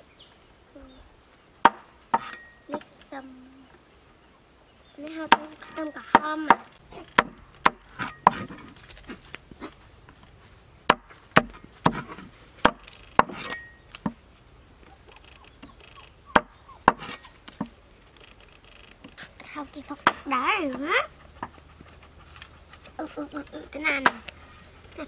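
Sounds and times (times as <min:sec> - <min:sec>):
cleaver chopping on wooden board: 0:01.6 - 0:02.3, 0:06.1 - 0:08.6, 0:10.9 - 0:14.2, 0:16.3 - 0:17.7, 0:20.0 - 0:20.2.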